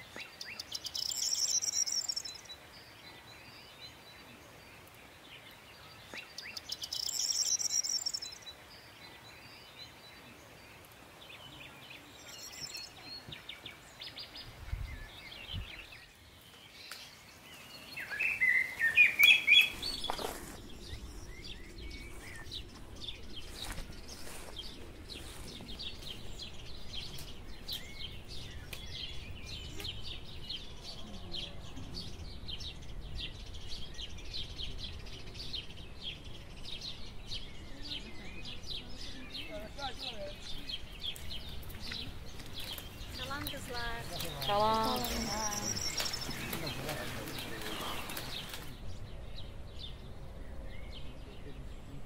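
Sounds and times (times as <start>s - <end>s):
birds chirping: 0.0s - 52.0s
buzzy bird trills: 0.8s - 2.5s, 6.7s - 8.4s.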